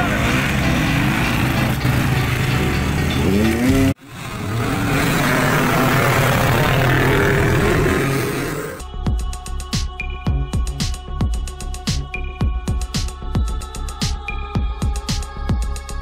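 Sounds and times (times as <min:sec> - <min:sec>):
dirt bike engines idling: 0:00.0 - 0:08.8
engine revving: 0:00.0 - 0:08.8.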